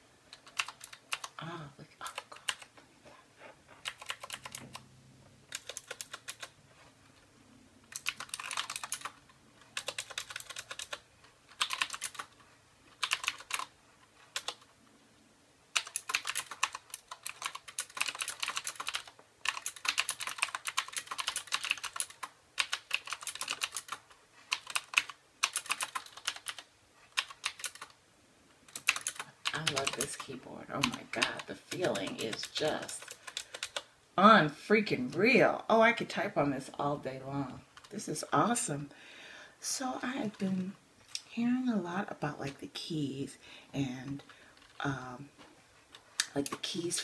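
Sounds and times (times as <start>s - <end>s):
clicky mechanical keyboard typing: 0.3s - 1.4s, 3.8s - 4.9s, 5.5s - 6.6s, 7.9s - 9.2s, 9.8s - 12.4s, 13.0s - 13.7s, 14.3s - 14.7s, 15.8s - 28.0s, 28.7s - 33.8s.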